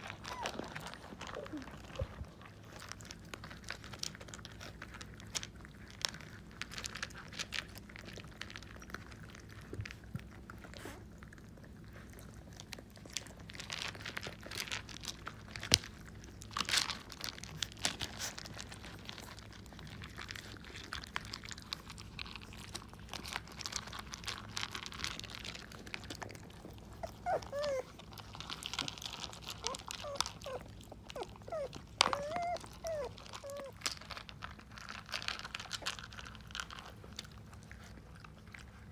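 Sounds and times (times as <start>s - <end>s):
puppies whimpering: 0.0s - 2.6s, 26.8s - 34.2s
puppies crunching dry kibble: 0.0s - 38.9s.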